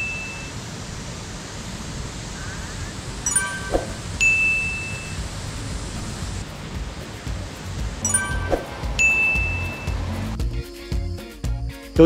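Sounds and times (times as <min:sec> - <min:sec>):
bright chime ding: 0:03.3 - 0:05.2, 0:08.0 - 0:10.0
music with low bass: 0:06.2 - 0:11.9.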